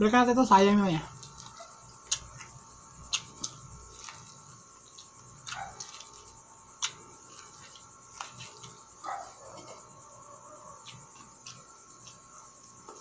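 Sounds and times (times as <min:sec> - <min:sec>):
crisp clicks of biting corn: 0:01.2 - 0:08.8.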